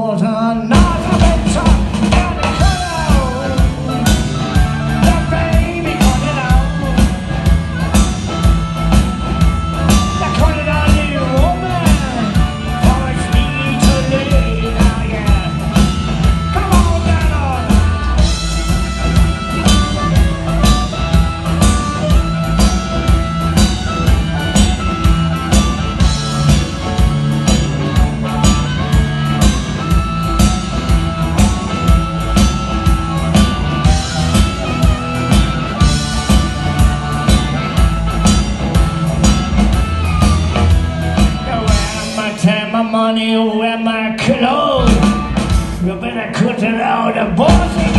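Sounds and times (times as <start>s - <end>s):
blues-rock band playing: 0.0s - 47.9s
electric guitar lead with bent notes: 0.0s - 47.9s
rock drum beat: 0.1s - 47.9s.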